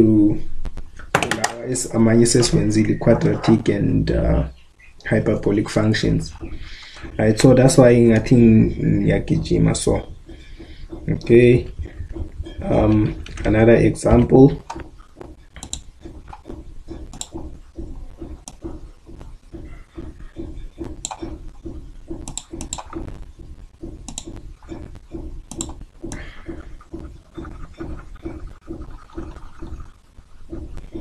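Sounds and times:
low pulsing noise: 0.0 - 31.0
computer mouse clicks: 14.6 - 17.5, 18.2 - 19.3, 20.8 - 23.2, 24.0 - 24.9, 25.5 - 28.0.

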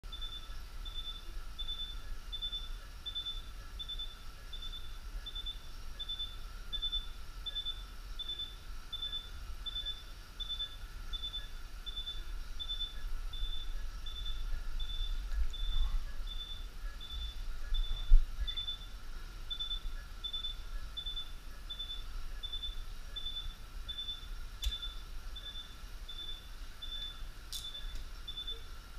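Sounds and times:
patient monitor pulse beeps: 0.0 - 28.9
low equipment rumble: 10.8 - 27.5.

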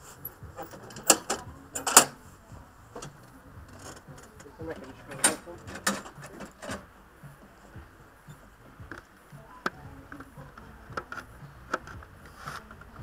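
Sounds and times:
faint sharp clicks and taps: 8.3 - 13.0.

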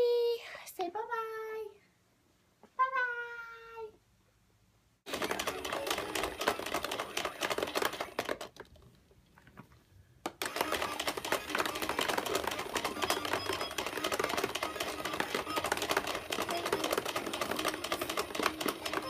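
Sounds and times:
plastic balls clattering: 5.1 - 19.0.

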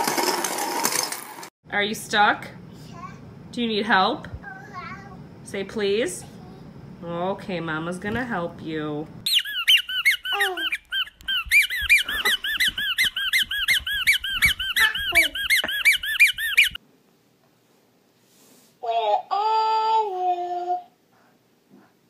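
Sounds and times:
rubber squeaky toy squeaking: 9.3 - 16.8
baby laughing: 10.2 - 16.6.

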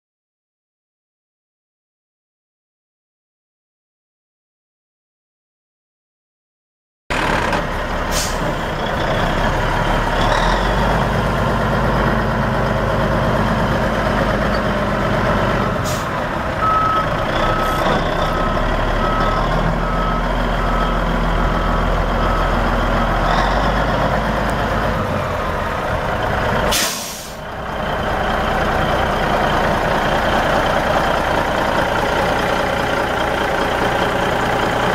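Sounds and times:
diesel truck engine idling: 7.1 - 34.9.

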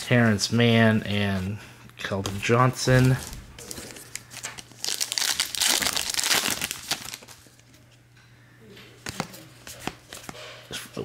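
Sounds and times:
foil wrapper tearing and crinkling: 2.9 - 7.4.

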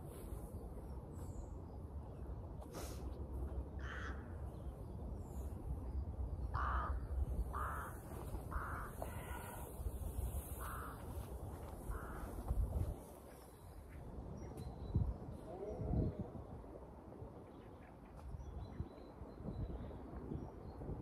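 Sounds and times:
crows cawing: 3.8 - 4.4, 6.5 - 9.8, 10.6 - 12.4.

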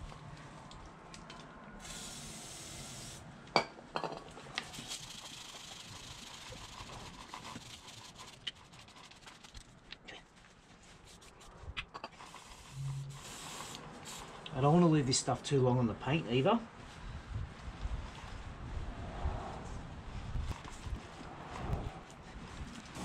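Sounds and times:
stiff brush scrubbing a chain: 4.6 - 9.8.

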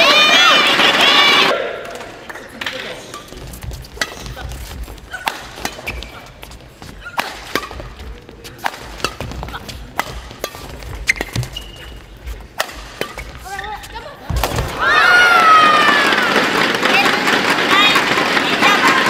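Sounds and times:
rackets hitting shuttlecock: 1.8 - 19.0
shoes squeaking on court: 3.0 - 14.6.

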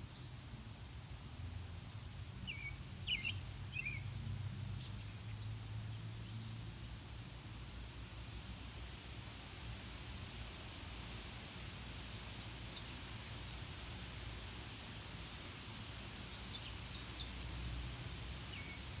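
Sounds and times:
small birds chirping: 1.8 - 7.6, 12.2 - 14.1, 15.6 - 17.7, 18.4 - 19.0.

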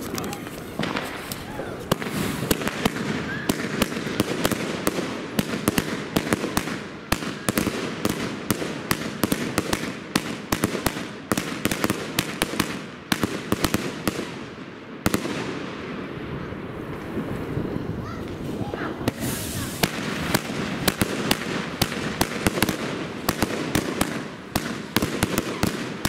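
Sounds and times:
firework shots banging: 0.0 - 16.0, 18.2 - 26.0
firework hiss: 0.4 - 8.4, 16.8 - 26.0.

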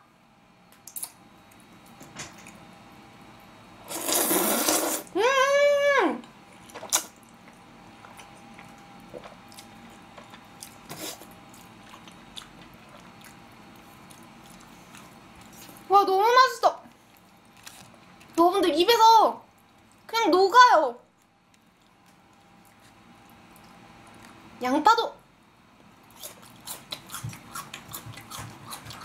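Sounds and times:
loud noodle slurp: 3.8 - 5.1
quiet chewing: 6.2 - 15.9, 16.9 - 18.4, 21.1 - 24.5, 25.9 - 29.0.

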